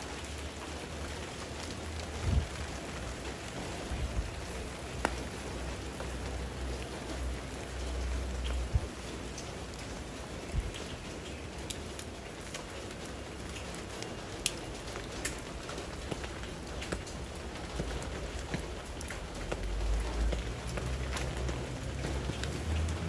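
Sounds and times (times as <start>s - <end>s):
raindrop ticks: 0.0s - 23.0s
steady rain falling: 0.0s - 23.0s.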